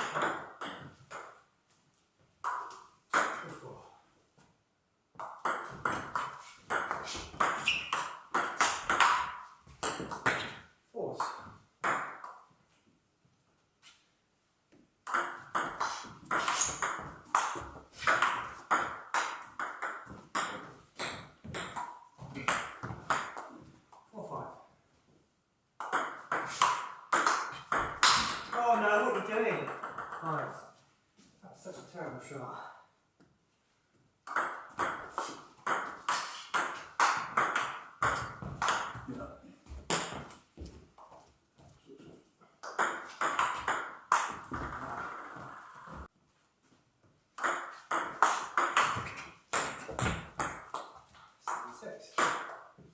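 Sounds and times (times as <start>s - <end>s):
ping pong ball hitting bats: 0.0s - 1.5s, 2.4s - 3.6s, 5.1s - 12.6s, 15.0s - 24.1s, 25.8s - 30.6s, 34.2s - 41.2s, 42.6s - 46.1s, 47.3s - 52.8s
ball bouncing on table: 25.8s - 30.4s, 42.6s - 46.1s, 47.4s - 51.6s.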